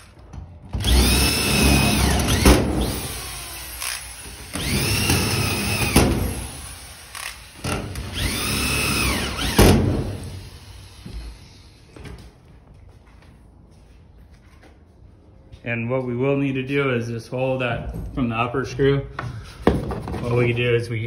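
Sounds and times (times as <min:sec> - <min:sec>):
screw gun motor whining: 0:00.8 - 0:09.6.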